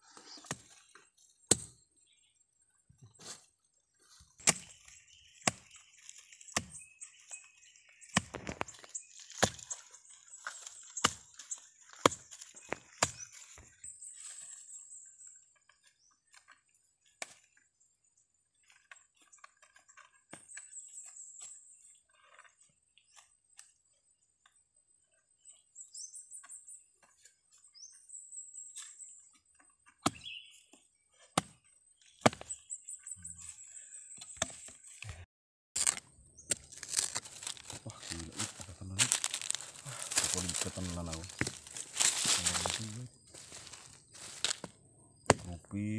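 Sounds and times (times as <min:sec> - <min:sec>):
machete chopping into soil: 0:01.5 - 0:01.8, 0:04.4 - 0:05.8, 0:08.1 - 0:09.8, 0:10.5 - 0:13.4, 0:30.0 - 0:30.3, 0:31.4 - 0:31.6, 0:32.2 - 0:32.6, 0:35.8 - 0:42.8, 0:43.5 - 0:45.5.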